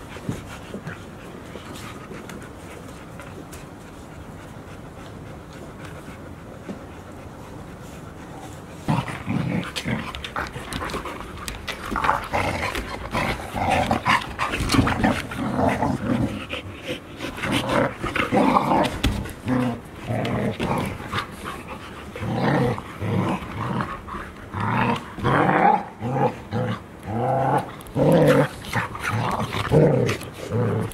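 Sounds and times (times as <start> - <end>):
puppies growling: 8.0 - 30.9.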